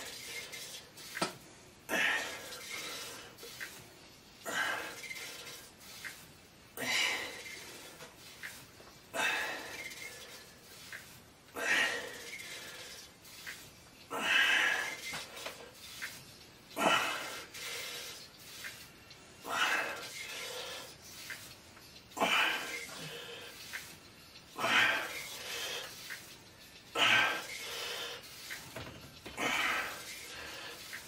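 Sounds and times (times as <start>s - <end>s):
man breathing heavily: 1.8s - 3.6s, 4.3s - 5.7s, 6.7s - 8.3s, 8.9s - 10.8s, 11.5s - 13.4s, 14.0s - 15.8s, 16.7s - 18.6s, 19.3s - 21.3s, 22.1s - 23.7s, 24.5s - 28.6s, 29.2s - 31.0s.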